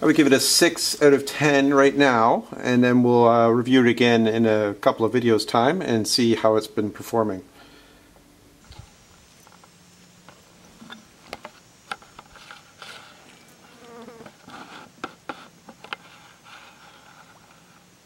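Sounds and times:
flying insects buzzing: 8.6 - 17.9.

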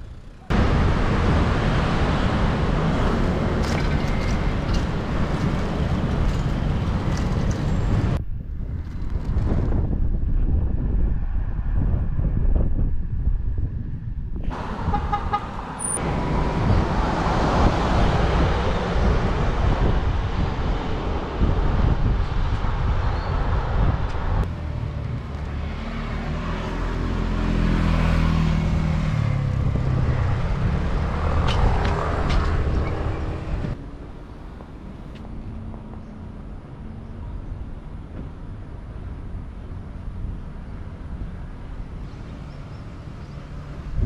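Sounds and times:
cars passing on road: 0.0 - 44.0
car horn toot: 14.8 - 16.0.

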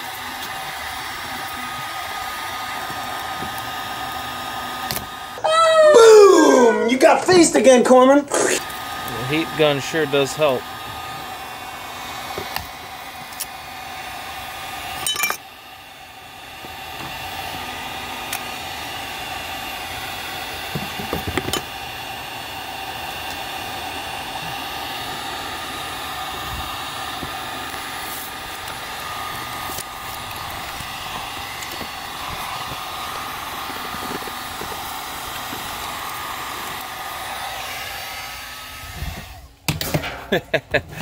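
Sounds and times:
heat gun blowing: 0.0 - 39.7.

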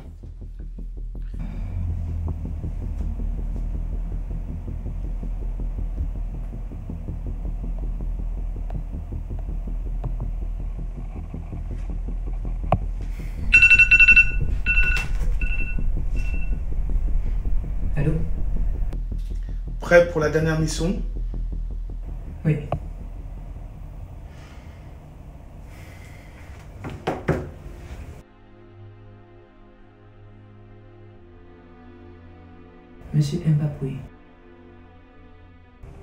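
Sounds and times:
steady low drone: 0.0 - 26.9, 27.6 - 36.0
phone ringtone beeps: 13.4 - 16.5.

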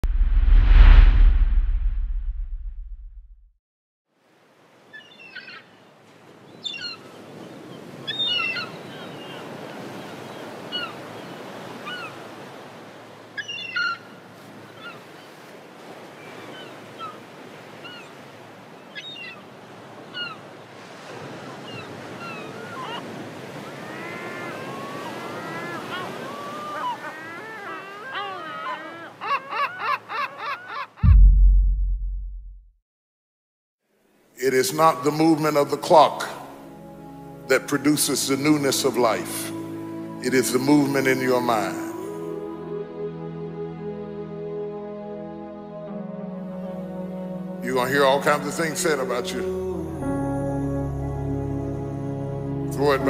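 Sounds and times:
birds chirping: 4.8 - 12.2, 13.3 - 15.4
ocean surf washing onto beach: 14.3 - 26.6.

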